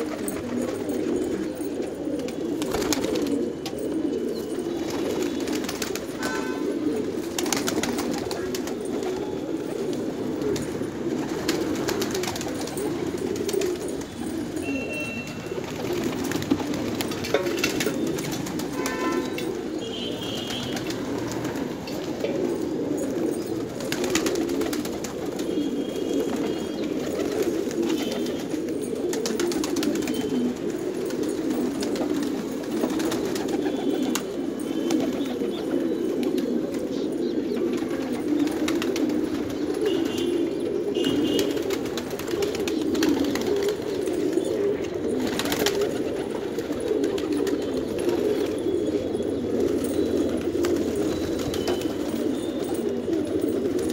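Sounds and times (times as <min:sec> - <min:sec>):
pigeons cooing: 0:00.0 - 0:53.9.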